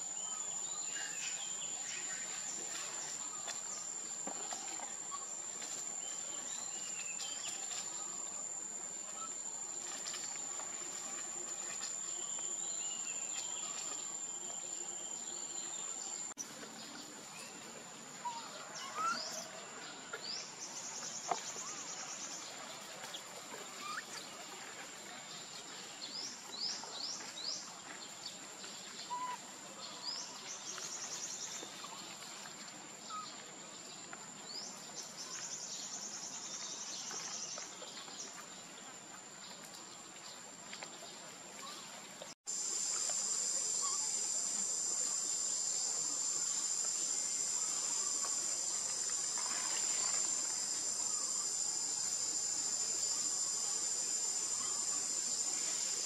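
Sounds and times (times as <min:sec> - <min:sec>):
insects droning: 0:42.5 - 0:56.0.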